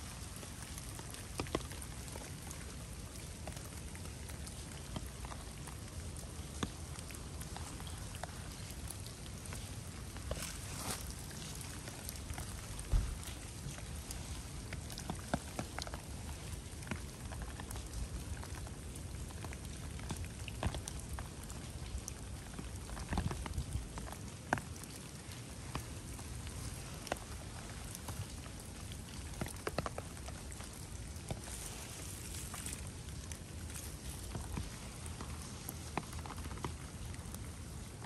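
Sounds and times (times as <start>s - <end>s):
steady rain: 0.0s - 38.0s.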